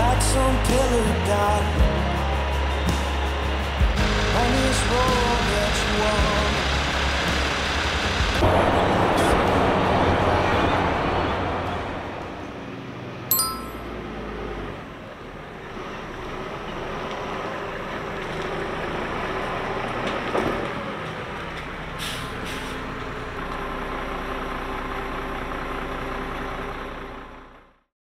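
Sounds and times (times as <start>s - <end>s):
bus engine running: 0.0s - 27.8s
brief ding: 13.3s - 14.0s
air brake hiss: 22.0s - 22.8s.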